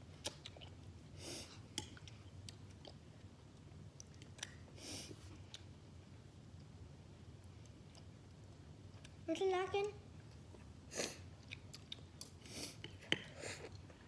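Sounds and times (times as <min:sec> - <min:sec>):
chewing: 0:11.4 - 0:14.0.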